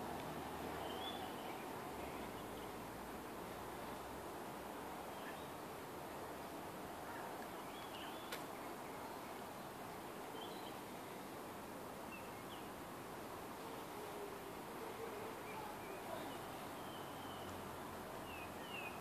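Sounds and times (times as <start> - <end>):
steady background hiss: 0.0 - 19.0
faint bird chirps: 0.8 - 2.8, 5.1 - 5.6, 7.1 - 9.3, 15.0 - 17.6, 18.2 - 19.0.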